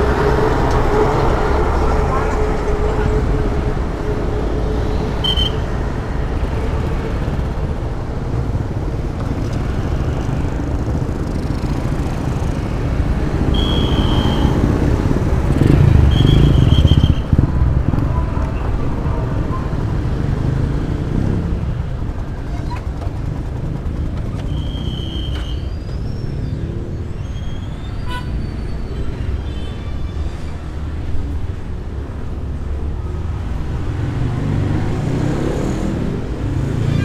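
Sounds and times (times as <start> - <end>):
road and wind rumble: 0.0 - 37.0
scooter engine running: 22.1 - 25.0.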